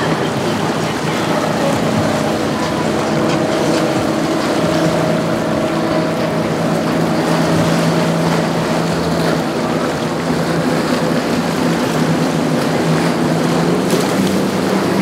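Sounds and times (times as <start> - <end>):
hull hissing through choppy water: 0.0 - 15.0
outboard engines droning: 0.0 - 15.0.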